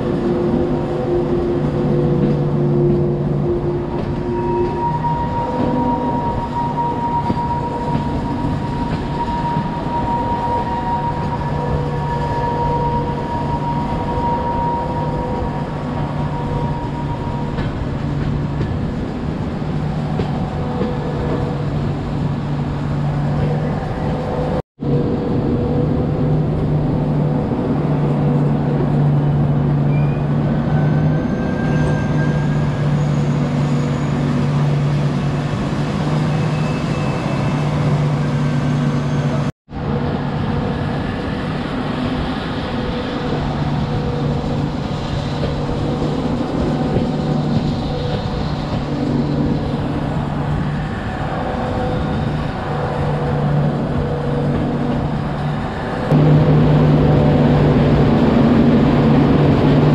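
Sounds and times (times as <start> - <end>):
train rumble: 0.0 - 59.9
sustained humming tones: 56.1 - 59.7.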